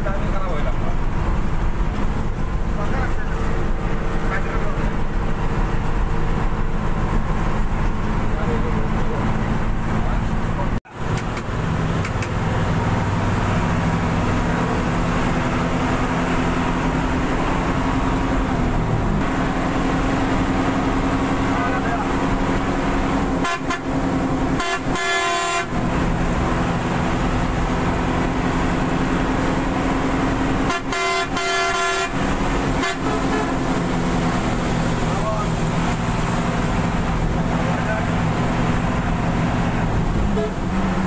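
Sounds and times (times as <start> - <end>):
bus engine running: 0.0 - 41.0
horn toots: 23.3 - 25.9, 30.6 - 33.8.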